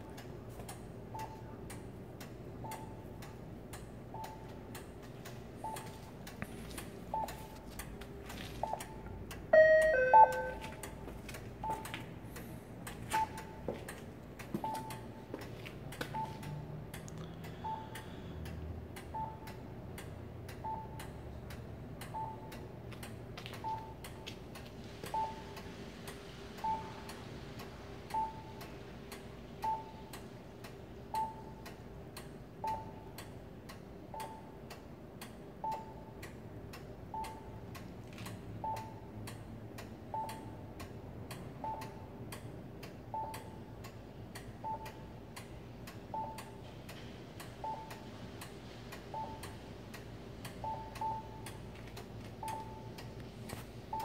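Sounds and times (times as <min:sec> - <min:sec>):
short beeps: 0:08.6 - 0:10.8.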